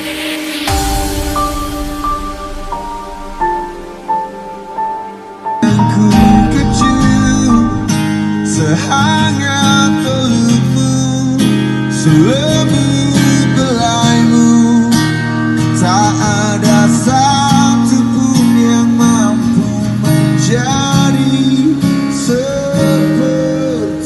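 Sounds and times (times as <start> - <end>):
acoustic guitar: 0.0 - 24.0
man singing: 5.6 - 24.0.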